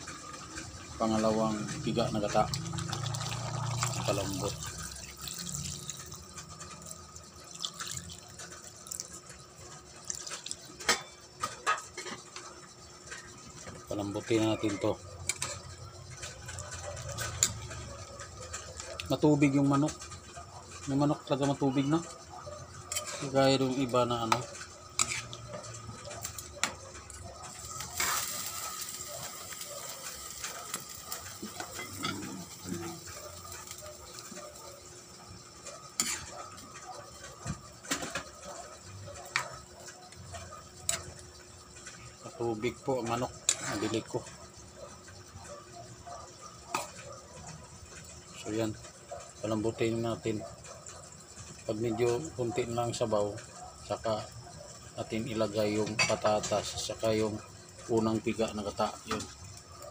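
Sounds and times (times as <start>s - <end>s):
curry bubbling in a pot: 0.1s - 45.7s
liquid dripping into a pan: 2.6s - 9.2s.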